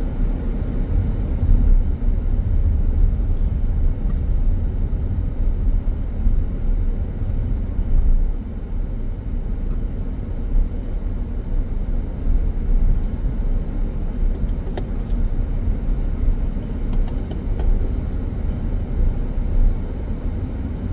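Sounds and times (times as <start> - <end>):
car engine and tyre noise: 0.0 - 20.9.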